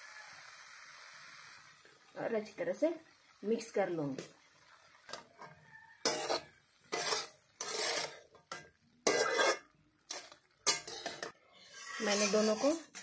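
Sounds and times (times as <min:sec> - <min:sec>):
spatula scraping metal pan: 0:05.1 - 0:13.0.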